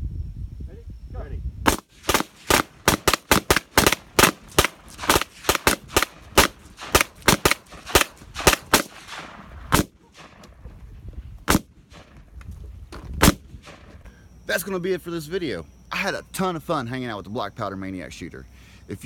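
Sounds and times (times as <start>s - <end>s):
rapid handgun fire: 1.7s - 10.5s, 11.5s - 12.2s, 13.2s - 13.9s.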